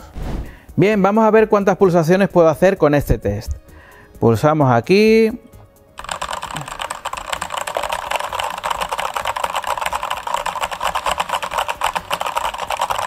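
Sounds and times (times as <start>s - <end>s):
rapid keyboard clatter: 6.0s - 13.0s.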